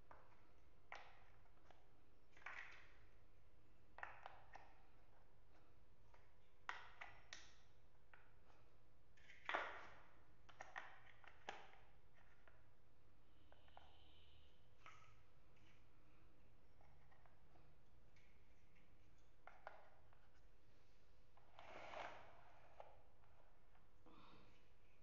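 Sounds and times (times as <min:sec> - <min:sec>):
plastic blocks clicking together: 0:00.1 - 0:03.2, 0:03.9 - 0:08.6, 0:09.2 - 0:12.6.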